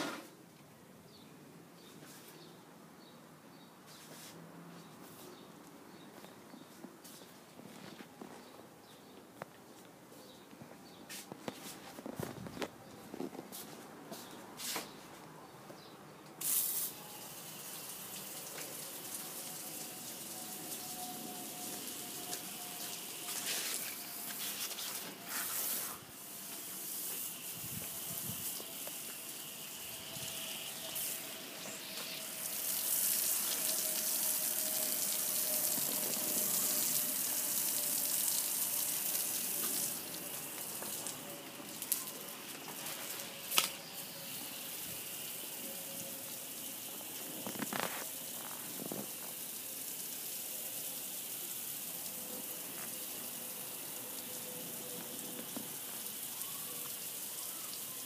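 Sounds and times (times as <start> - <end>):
water hissing: 16.4 - 57.5.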